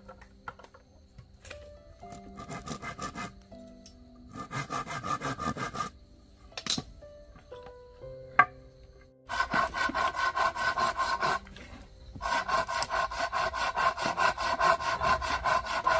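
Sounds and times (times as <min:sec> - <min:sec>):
hand saw cutting wood: 0:02.4 - 0:03.4, 0:04.3 - 0:05.9, 0:09.3 - 0:15.9.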